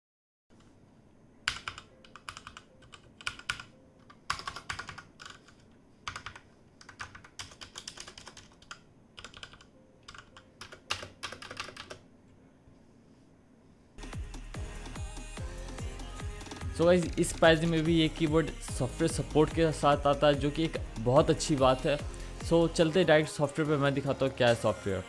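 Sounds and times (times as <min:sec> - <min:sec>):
mechanical keyboard typing: 0:01.5 - 0:12.0.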